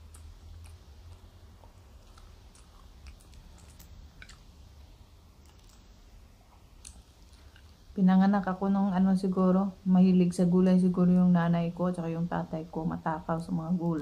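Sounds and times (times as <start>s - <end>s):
small mouth and finger clicks: 0.0s - 1.3s, 2.0s - 4.4s
quiet chewing: 0.0s - 7.8s
low steady hum: 0.0s - 14.0s.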